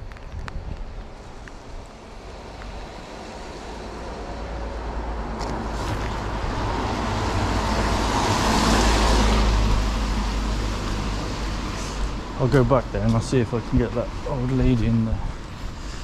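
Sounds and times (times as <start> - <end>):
tyre hiss on wet road: 5.6 - 12.4, 15.4 - 16.0.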